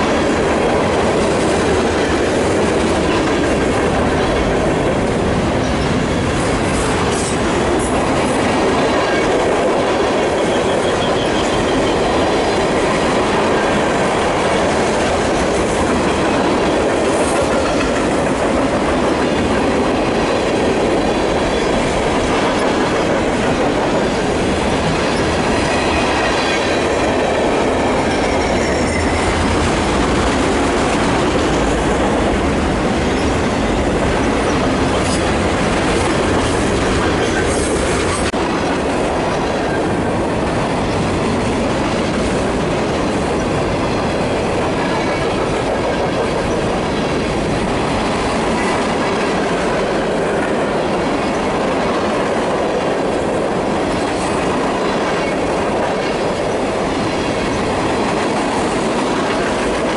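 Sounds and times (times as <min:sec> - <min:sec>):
train wheels rumbling on rails: 0:00.0 - 0:59.9
faint high wheel squeal: 0:10.4 - 0:12.1, 0:28.2 - 0:29.4.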